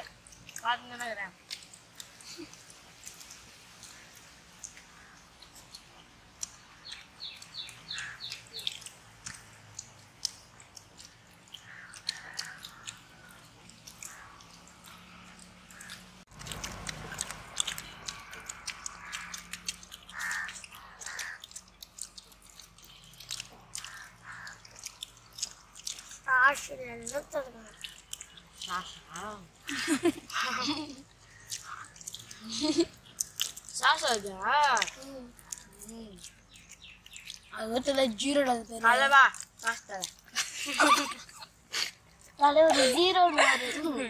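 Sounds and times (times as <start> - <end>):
children chewing and slurping: 0.0 - 44.0
bird calling: 3.8 - 9.9, 11.0 - 16.2, 17.7 - 22.0, 22.8 - 26.2, 27.6 - 33.9.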